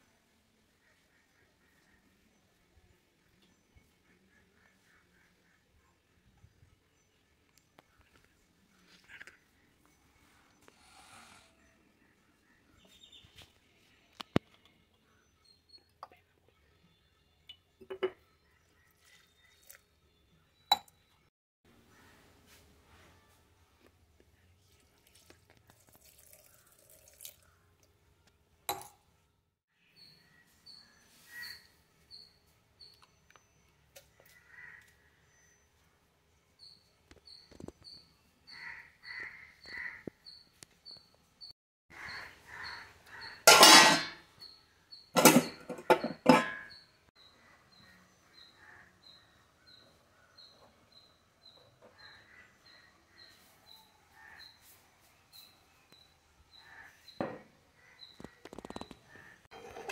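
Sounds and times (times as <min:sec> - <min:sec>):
steel kitchen vessels clattering: 0:43.3 - 0:44.3, 0:45.2 - 0:46.9, 0:59.5 - 0:59.9
small bird chirping: 0:58.0 - 0:59.3.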